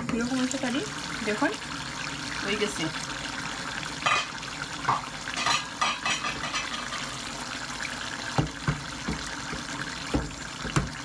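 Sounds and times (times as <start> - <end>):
curry simmering in pot: 0.2 - 11.0
cookware clinks and scrapes: 5.4 - 7.2.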